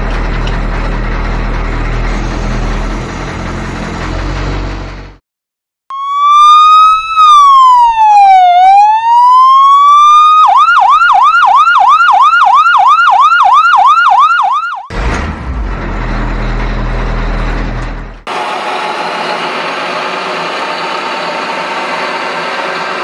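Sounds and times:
ambulance siren: 5.9s - 14.9s.

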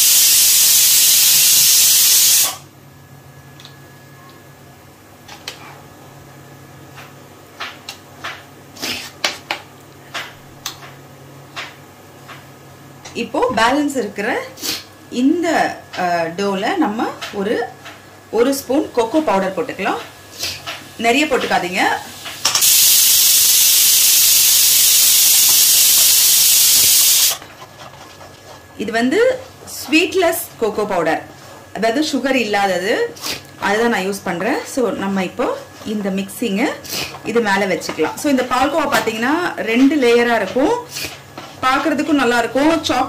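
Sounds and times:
loud steady hiss: 0.0s - 2.6s, 22.4s - 27.4s.

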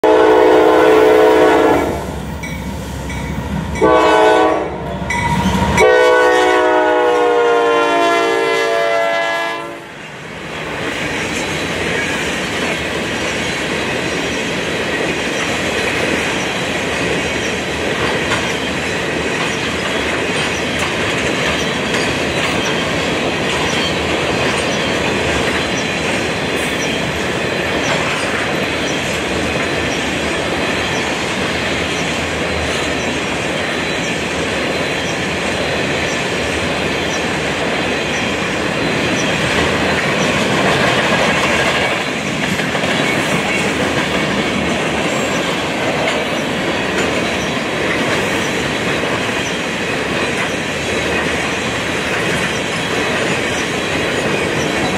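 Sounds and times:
locomotive air horn blasts: 0.0s - 2.1s, 3.8s - 4.9s, 5.7s - 9.9s
train wheels on rails: 0.0s - 54.9s
clickety-clack over rail joints: 10.0s - 54.9s.

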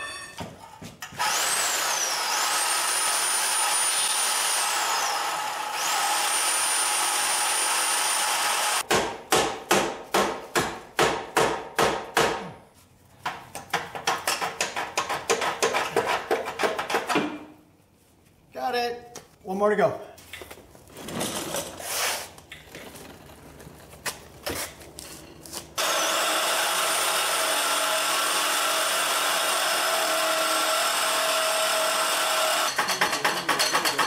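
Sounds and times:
power tool whining: 1.0s - 8.8s, 25.8s - 32.8s
hacksaw cutting metal pipe: 25.8s - 34.0s.

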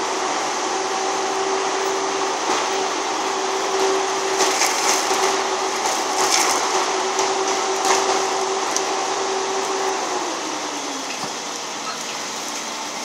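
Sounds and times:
diesel machinery droning: 0.0s - 13.0s
branches cracking and splintering: 1.9s - 10.1s.

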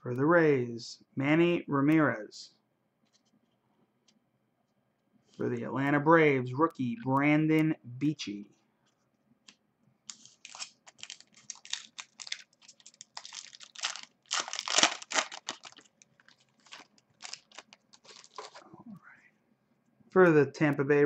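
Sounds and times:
foil wrapper crinkling and tearing: 10.1s - 18.6s.

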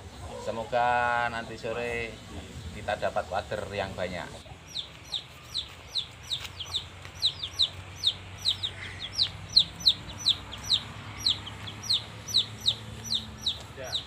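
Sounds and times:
chicks peeping: 3.6s - 14.0s.

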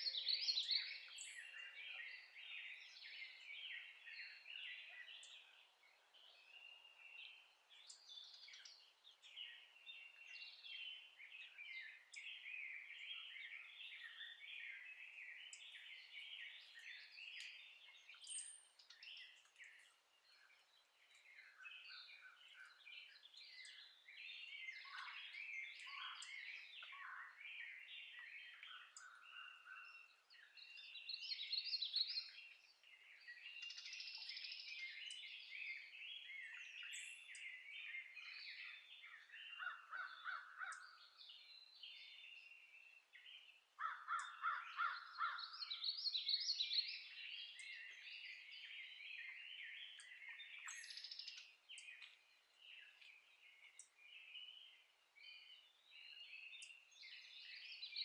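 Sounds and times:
songbirds singing: 0.0s - 58.0s.

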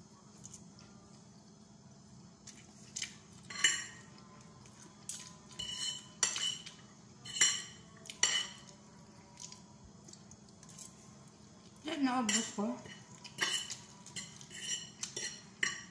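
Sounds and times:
forks clinking and scraping plate: 3.4s - 4.1s, 5.1s - 8.7s, 12.3s - 15.9s.

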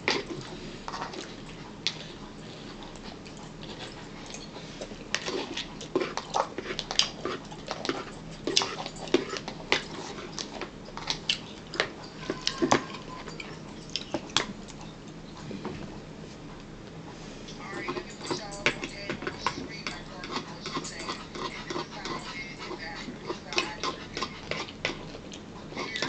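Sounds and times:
chewing: 0.0s - 26.0s
spoon scraping a plastic bowl: 17.8s - 25.0s.

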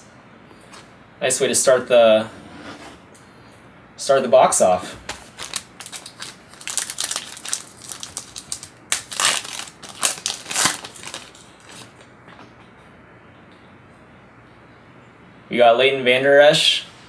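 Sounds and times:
foil wrapper tearing and crinkling: 5.1s - 12.0s.

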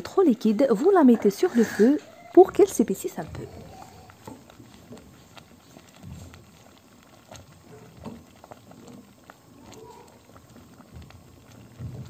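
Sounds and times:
thick puree bubbling in pot: 0.0s - 12.0s
bubbles popping: 2.4s - 12.0s.

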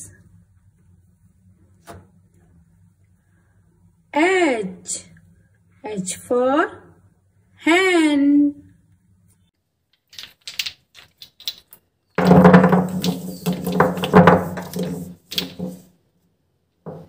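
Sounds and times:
plastic bottles clattering: 10.0s - 15.9s.

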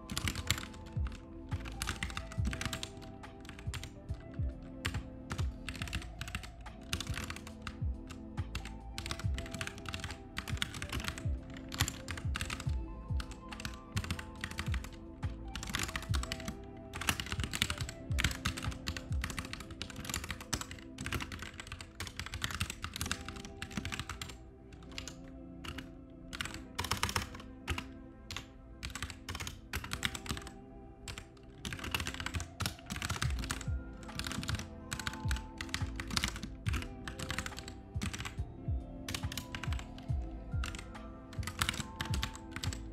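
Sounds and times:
computer keyboard typing: 0.0s - 42.9s
lo-fi background music: 0.0s - 42.9s.

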